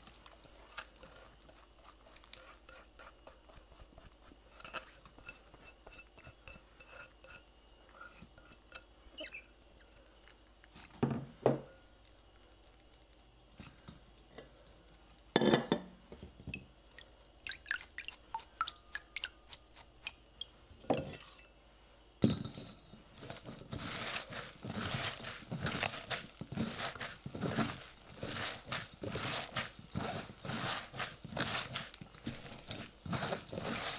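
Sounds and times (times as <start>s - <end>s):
hands squeezing wet vegetables: 16.9s - 20.6s, 23.1s - 33.9s.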